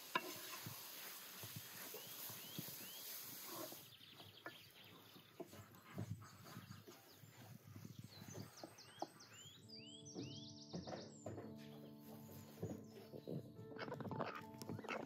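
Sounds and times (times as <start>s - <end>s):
spoon scraping steel pan: 0.0s - 1.2s
bird chirps: 1.8s - 15.0s.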